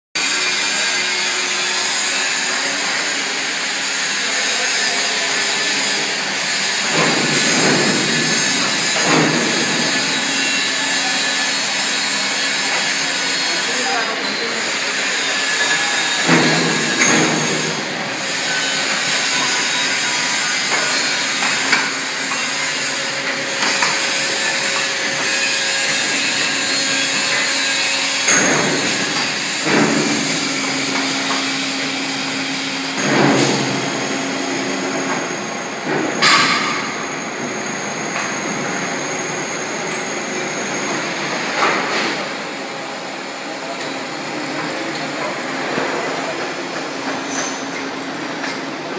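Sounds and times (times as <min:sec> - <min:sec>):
machine noise: 0:00.2 - 0:48.9
steady machine hum: 0:00.2 - 0:48.9.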